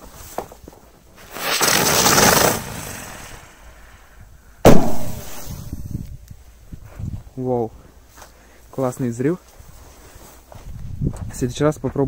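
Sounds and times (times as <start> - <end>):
firework hissing: 1.2 - 4.0, 4.7 - 5.9
firework bang: 1.3 - 3.6, 4.6 - 5.9.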